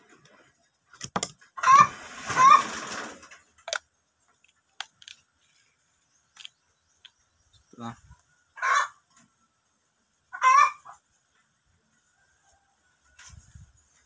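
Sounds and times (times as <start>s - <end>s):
chicken calling: 1.6s - 3.0s, 7.8s - 9.2s, 10.3s - 11.0s.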